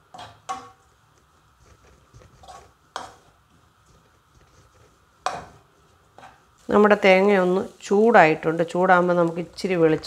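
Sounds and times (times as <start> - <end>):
spatula scraping pan: 1.6 - 8.5
spatula knocking against pan: 5.2 - 5.6.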